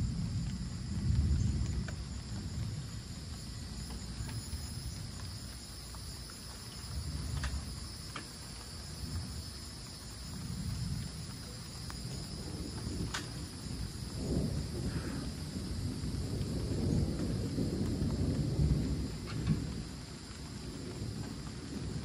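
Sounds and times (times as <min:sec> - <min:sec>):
distant thunder rumbling: 0:00.0 - 0:22.0
insects chorus: 0:00.0 - 0:22.0
faint ticks: 0:00.4 - 0:08.8, 0:10.8 - 0:13.5.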